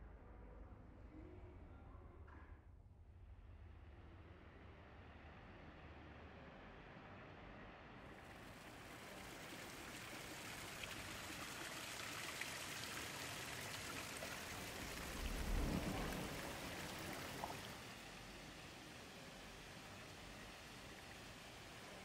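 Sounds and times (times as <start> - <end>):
fountain water splashing: 8.3 - 22.0
low rumble: 14.8 - 18.7.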